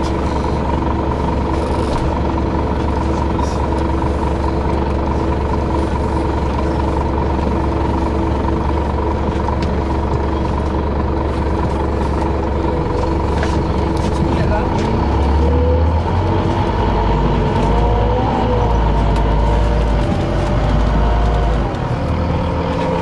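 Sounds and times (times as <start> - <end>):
bus engine idling: 0.0 - 23.0.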